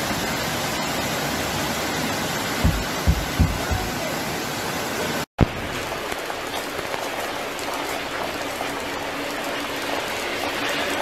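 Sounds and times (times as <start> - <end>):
floodwater runoff rushing: 0.0 - 11.0
heavy rain hissing: 0.0 - 11.0
brief thump: 2.6 - 3.9.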